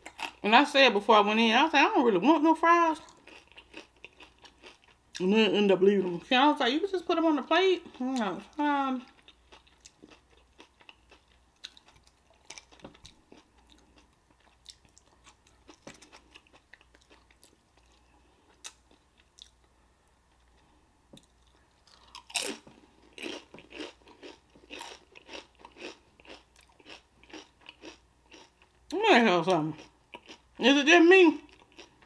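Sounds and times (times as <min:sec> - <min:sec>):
chewing and crunching pepper: 0:00.0 - 0:00.4, 0:03.0 - 0:05.3, 0:07.8 - 0:29.0, 0:29.6 - 0:30.7, 0:31.4 - 0:32.0.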